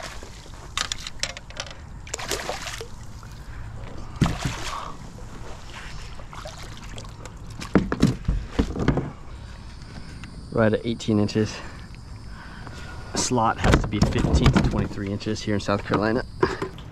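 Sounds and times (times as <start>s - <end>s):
water splashing and dripping: 2.0s - 7.8s.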